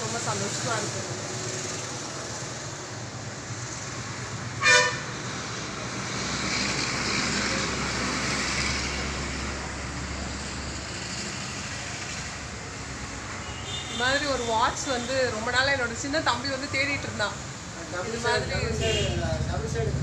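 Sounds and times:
road traffic noise: 0.0 - 20.0
vehicle horn toot: 4.6 - 5.1, 18.7 - 19.2.

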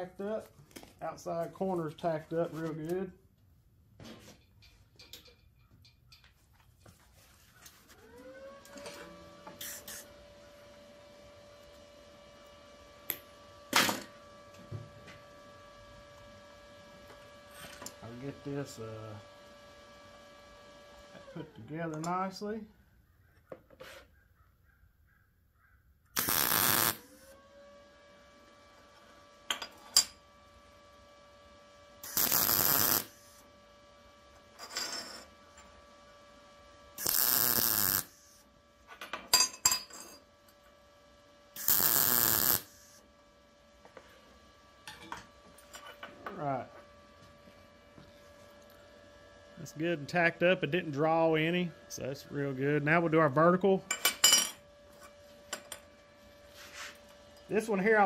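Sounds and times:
welder arc crackle: 26.2 - 27.4, 32.0 - 33.4, 37.0 - 38.4, 41.6 - 43.0
electric motor humming: 26.2 - 29.5, 30.2 - 34.6, 35.2 - 38.7, 40.4 - 43.2
steady hum: 26.2 - 58.0.

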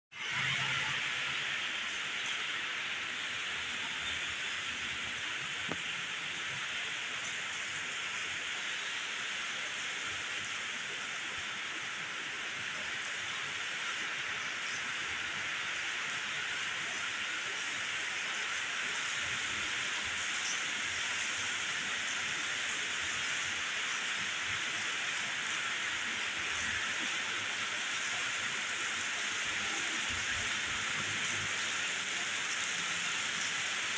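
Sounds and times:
steady rain falling: 0.1 - 33.9.

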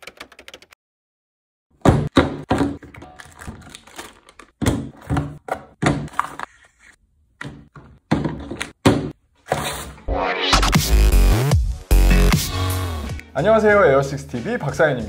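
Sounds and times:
objects thunking on tabletop: 7.4 - 9.9.

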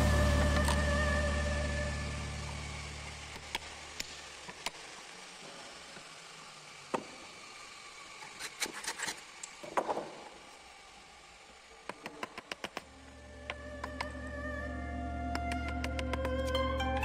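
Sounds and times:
hand tool clicks and knocks: 11.9 - 12.9, 15.3 - 16.6.

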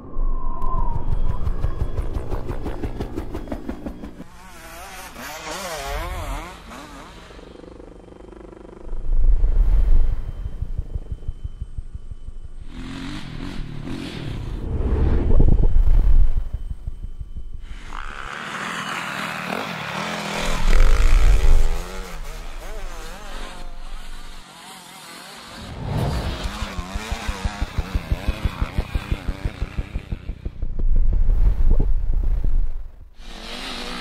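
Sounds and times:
dirt bike engines revving: 4.3 - 9.0, 17.7 - 30.7.

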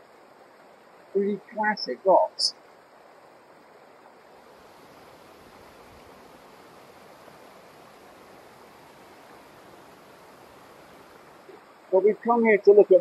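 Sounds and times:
stream rushing over rocks: 0.0 - 13.0.

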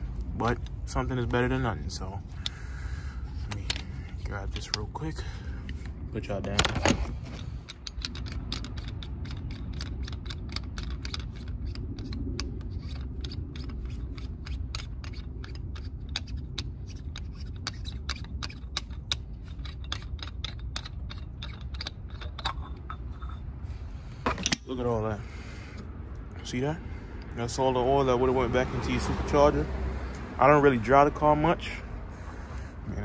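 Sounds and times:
low rumble: 0.0 - 17.2
small clicks and scrapes: 2.4 - 5.0, 5.6 - 24.6.

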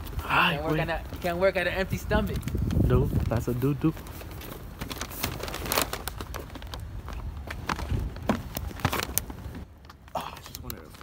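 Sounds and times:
rustling: 0.9 - 9.7.

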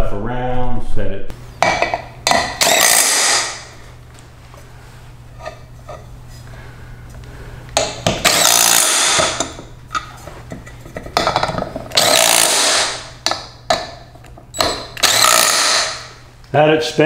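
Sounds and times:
power driver whirring: 2.4 - 3.8, 7.7 - 9.6, 11.9 - 13.2, 14.5 - 16.2.

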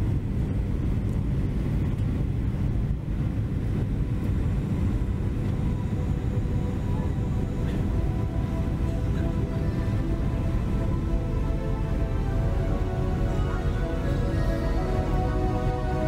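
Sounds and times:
airliner cabin rumble: 0.0 - 16.0
faint background music: 3.5 - 16.0.

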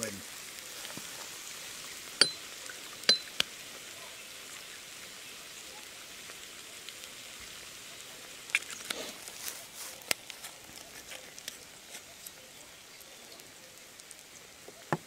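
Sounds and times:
glasses clinking: 2.2 - 2.4, 3.1 - 3.4.

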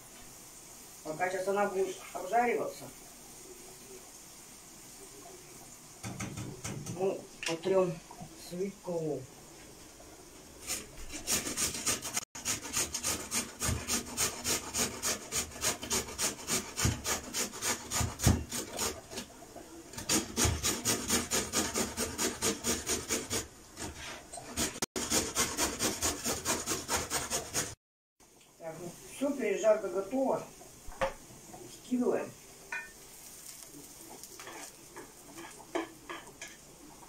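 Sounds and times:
grating on metal grater: 10.6 - 19.3, 19.9 - 27.8.

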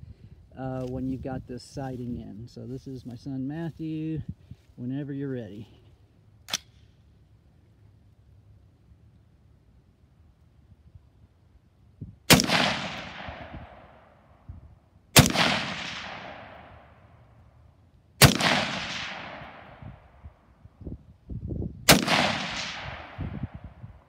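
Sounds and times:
rifle shots with echo: 12.3 - 14.4, 15.1 - 17.2, 18.2 - 20.3, 21.8 - 23.8.

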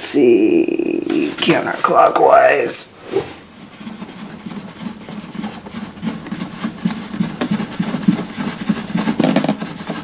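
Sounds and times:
wooden board handling noise: 3.4 - 10.0.

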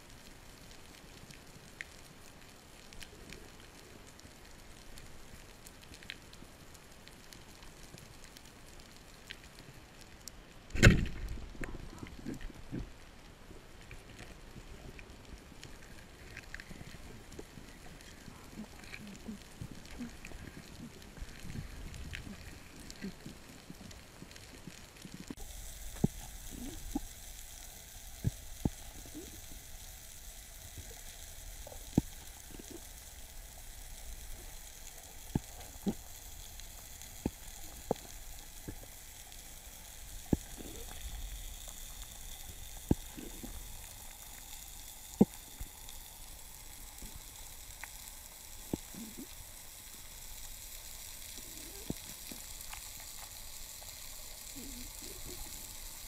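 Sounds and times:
underwater watery hiss: 15.6 - 56.0.

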